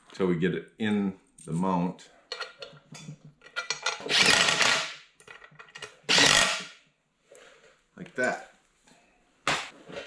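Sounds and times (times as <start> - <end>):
loose bolts and washers clinking: 2.3 - 4.1
cordless impact driver: 4.0 - 5.0, 6.1 - 6.7.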